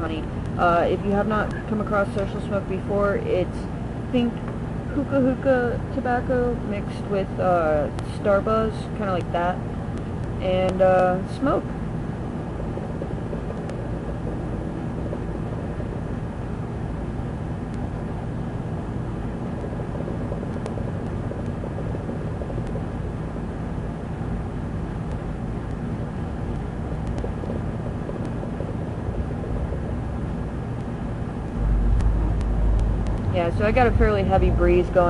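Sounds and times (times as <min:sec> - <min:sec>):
wind buffeting microphone: 0:31.2 - 0:35.0.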